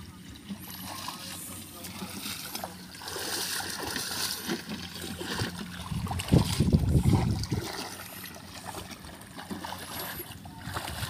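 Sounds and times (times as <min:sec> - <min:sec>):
legs wading through shallow water: 0:00.0 - 0:11.0
deep rumble: 0:05.2 - 0:08.0.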